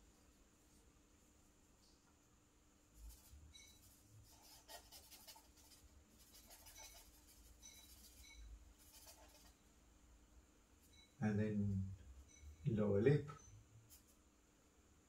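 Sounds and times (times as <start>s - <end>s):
charcoal scratching on paper: 3.0s - 9.6s, 13.9s - 14.2s.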